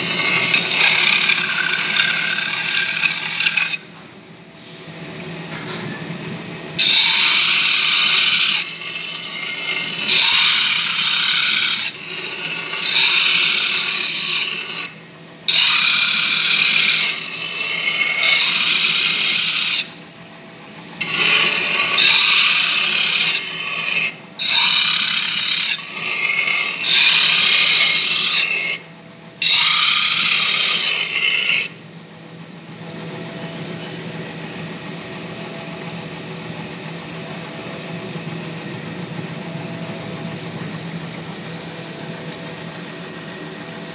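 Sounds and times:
glass grinding on diamond plate: 0:00.0 - 0:03.8, 0:06.8 - 0:19.9, 0:21.0 - 0:28.8, 0:29.4 - 0:31.7
grinder motor hum: 0:00.0 - 0:04.1, 0:04.9 - 0:43.9.

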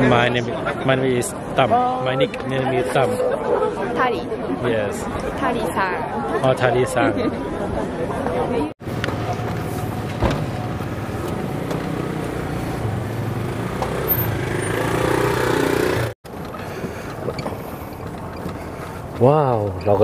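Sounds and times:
car engines running: 0:08.8 - 0:20.0
road noise: 0:08.8 - 0:20.0.

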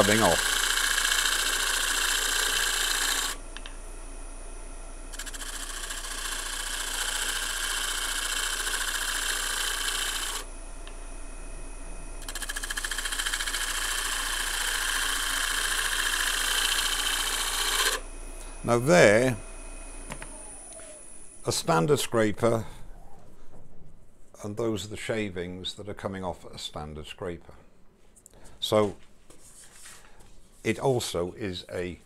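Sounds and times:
scraper cutting spinning wood: 0:00.0 - 0:03.4, 0:05.1 - 0:10.5, 0:12.2 - 0:18.0
lathe humming: 0:00.0 - 0:22.6.

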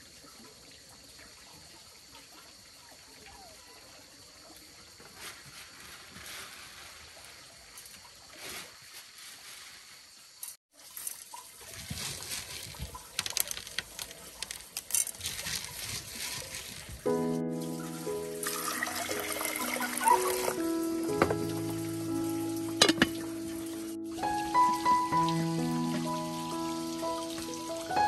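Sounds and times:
water trickling and sloshing: 0:00.0 - 0:28.0
water splashing: 0:10.7 - 0:28.0.

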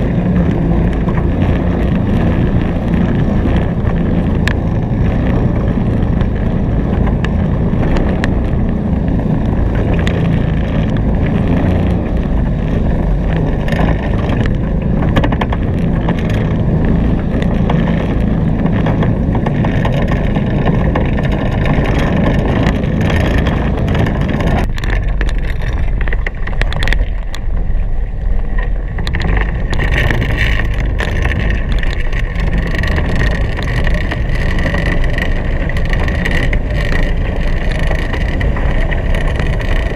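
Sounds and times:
water rushing along hulls: 0:00.0 - 0:39.9
wind on microphone: 0:00.0 - 0:39.9.

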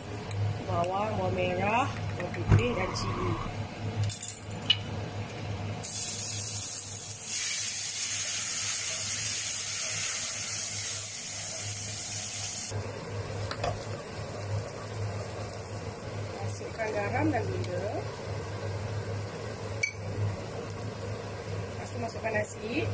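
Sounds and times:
food sizzling in hot oil: 0:05.8 - 0:22.9.

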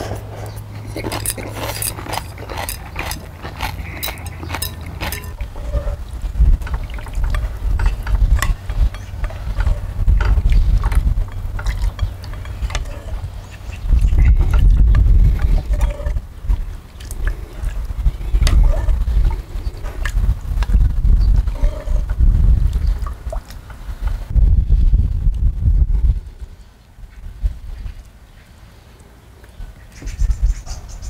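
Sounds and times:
noodles slurped: 0:00.0 - 0:20.8
wind on microphone: 0:00.0 - 0:28.2, 0:29.6 - 0:31.0
broth ladled from pot: 0:00.5 - 0:20.8
chopsticks clicking against bowls: 0:00.9 - 0:05.4.

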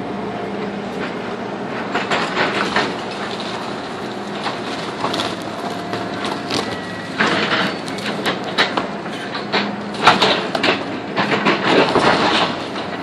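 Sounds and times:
excavator engine running: 0:00.0 - 0:13.0
wood breaking and debris crashing: 0:02.0 - 0:08.9, 0:09.6 - 0:13.0.

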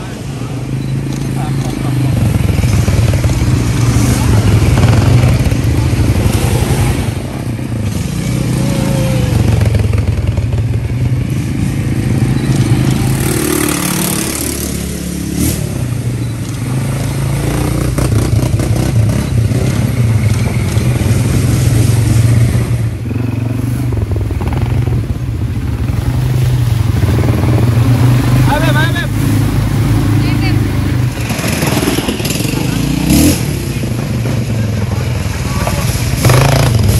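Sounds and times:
atv engine running: 0:00.0 - 0:36.9.

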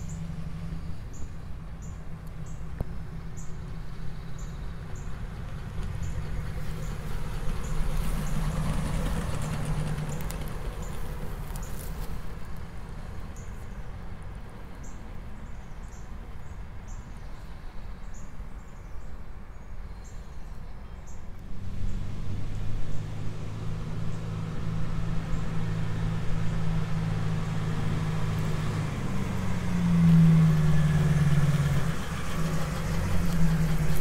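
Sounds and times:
car driving past: 0:03.3 - 0:13.2, 0:21.4 - 0:34.0
small birds chirping: 0:10.0 - 0:12.2.

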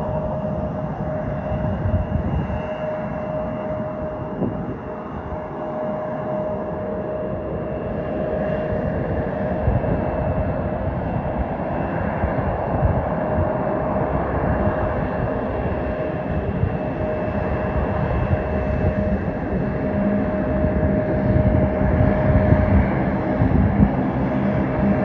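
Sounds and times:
jet engines running: 0:00.0 - 0:25.0.

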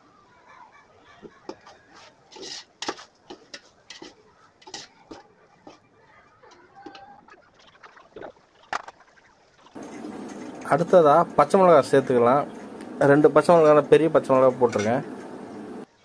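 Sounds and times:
spoon scraping a metal pot: 0:01.5 - 0:05.9.

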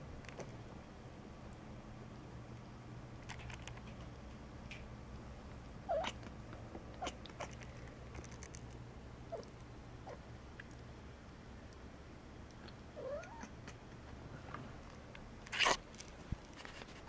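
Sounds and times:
cat chirping: 0:05.8 - 0:06.2, 0:13.0 - 0:13.8.

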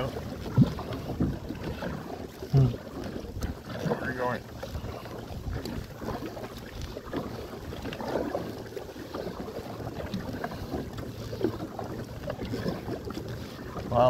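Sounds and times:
wind on microphone: 0:00.0 - 0:11.0
paddle splashing in water: 0:00.0 - 0:14.0.

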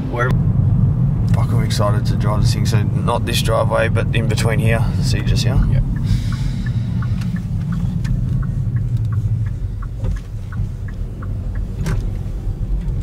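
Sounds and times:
car engine and road rumble: 0:00.0 - 0:13.0
turn indicator ticking: 0:03.0 - 0:13.0.

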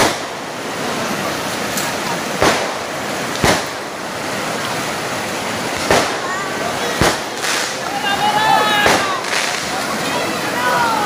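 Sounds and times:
sharp bangs: 0:00.0 - 0:00.5, 0:02.4 - 0:04.0, 0:05.7 - 0:07.9, 0:08.7 - 0:09.8
river rapids rushing over rocks: 0:00.0 - 0:11.0.

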